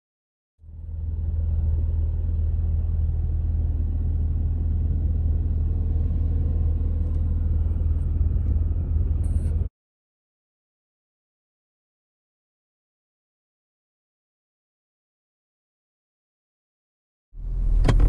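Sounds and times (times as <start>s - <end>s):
car engine and road rumble: 0.6s - 9.7s, 17.4s - 18.0s.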